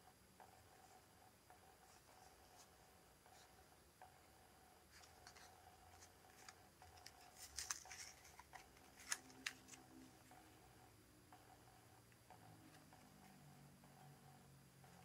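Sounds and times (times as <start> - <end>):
card crackles: 5.0 - 10.0.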